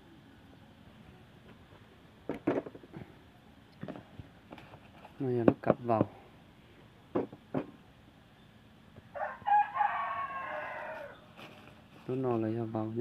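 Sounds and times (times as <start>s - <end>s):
rooster crowing: 9.1s - 11.3s.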